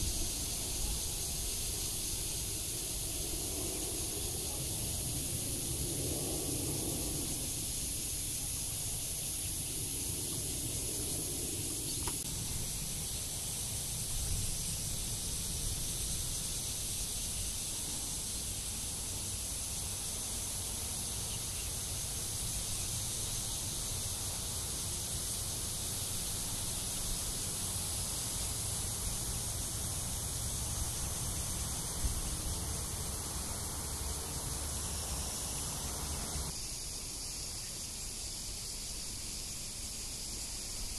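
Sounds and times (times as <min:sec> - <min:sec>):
cicadas chorus: 0:00.0 - 0:40.9
low steady rumble: 0:21.3 - 0:36.5.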